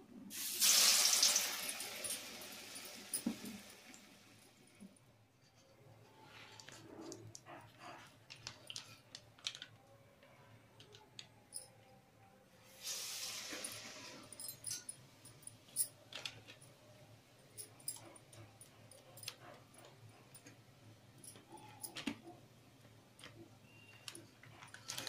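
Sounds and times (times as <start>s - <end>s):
food sizzling in hot oil: 0.3s - 4.2s, 12.7s - 14.2s
plastic crinkling: 23.9s - 25.0s.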